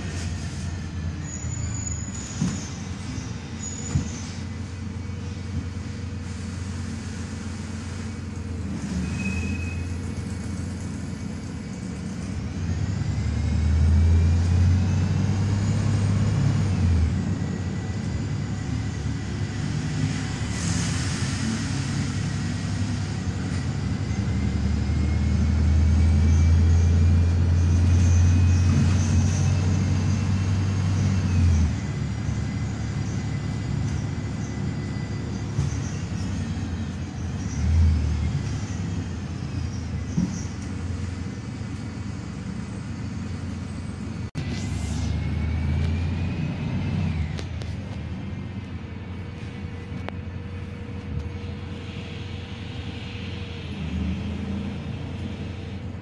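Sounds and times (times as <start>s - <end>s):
bus diesel engine drone: 0.0s - 56.0s.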